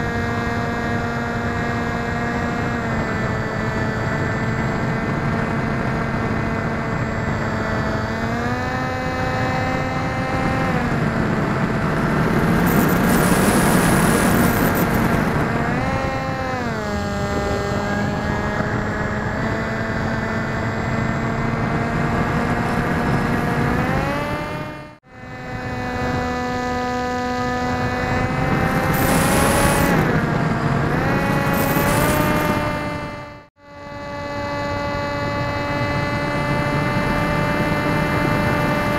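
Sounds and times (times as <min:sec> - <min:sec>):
electric motor and propeller whine: 0:00.0 - 0:38.9
wind noise rushes: 0:03.8 - 0:33.3.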